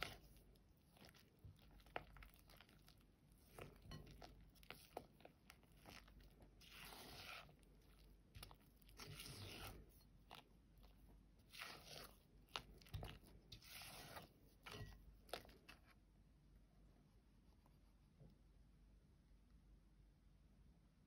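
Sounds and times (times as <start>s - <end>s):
spatula scraping glass bowl: 3.4s - 10.5s, 11.4s - 15.8s.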